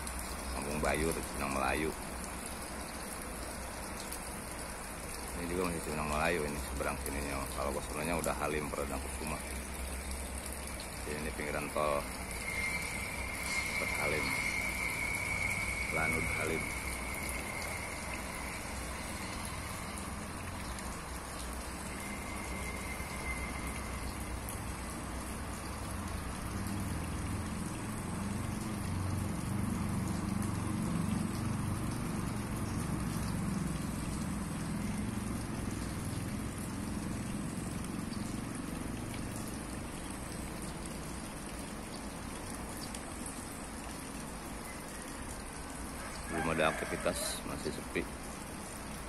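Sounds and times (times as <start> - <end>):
road traffic noise: 0.0 - 49.0
passing vehicle rumble: 12.0 - 39.8.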